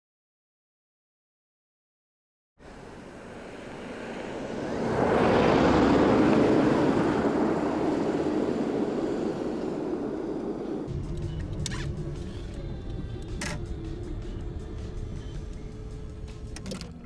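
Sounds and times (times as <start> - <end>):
car passing on snowy road: 2.6 - 13.2.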